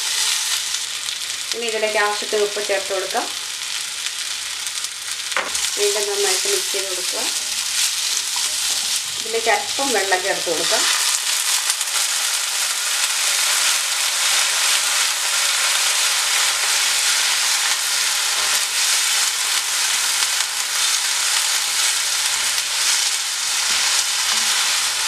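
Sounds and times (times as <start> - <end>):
food sizzling in a pan: 0.0 - 25.0.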